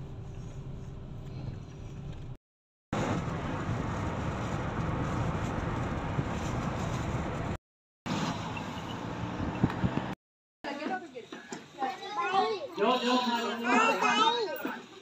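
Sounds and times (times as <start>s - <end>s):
car engine and tyre rumble: 0.0s - 2.4s, 3.0s - 10.2s.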